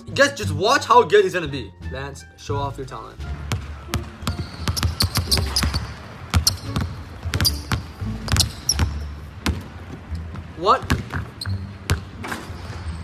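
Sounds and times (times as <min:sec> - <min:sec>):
basketballs bouncing on wooden floor: 0:03.3 - 0:12.2.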